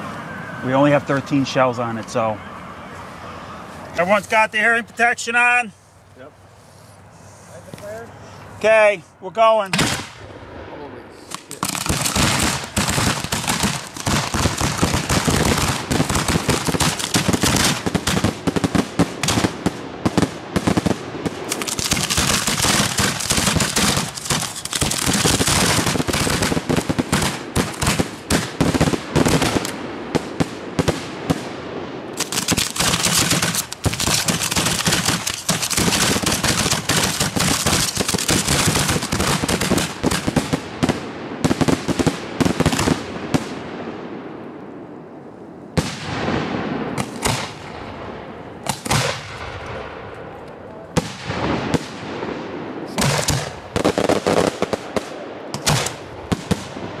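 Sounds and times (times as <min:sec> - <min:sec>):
fireworks crackling: 0:00.0 - 0:06.0, 0:11.2 - 0:43.7, 0:45.8 - 0:49.6, 0:50.9 - 0:57.0
fireworks shells launching and bursting: 0:11.2 - 0:43.6.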